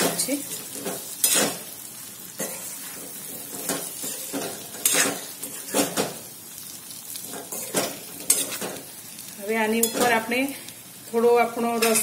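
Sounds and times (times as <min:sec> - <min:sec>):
oil sizzling: 0:00.0 - 0:12.0
metal spatula scraping a pan: 0:00.1 - 0:06.2, 0:07.2 - 0:08.8, 0:11.7 - 0:12.0.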